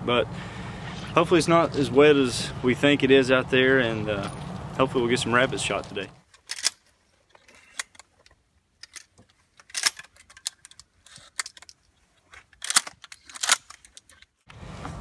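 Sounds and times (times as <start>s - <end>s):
shotguns being loaded: 6.2s - 14.4s.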